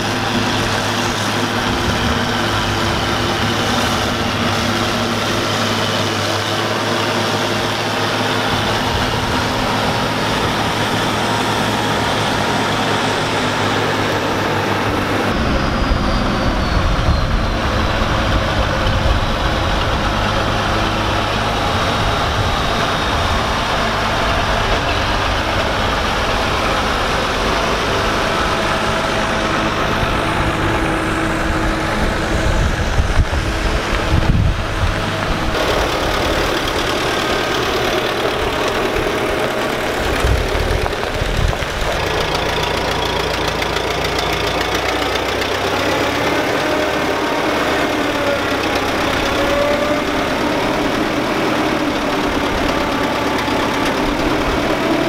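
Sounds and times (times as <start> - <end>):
tractor driving past: 0.0 - 55.0
tractor engine running under load: 0.0 - 55.0
forage harvester chopping corn: 18.0 - 55.0.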